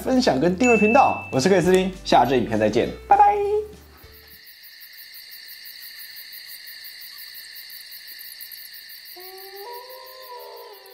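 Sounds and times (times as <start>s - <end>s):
insects chirring: 3.9s - 10.9s.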